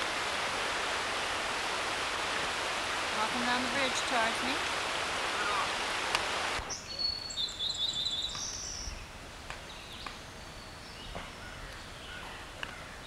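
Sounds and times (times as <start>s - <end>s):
rushing river water: 0.0s - 6.7s
songbirds whistling and chirping: 6.6s - 12.5s.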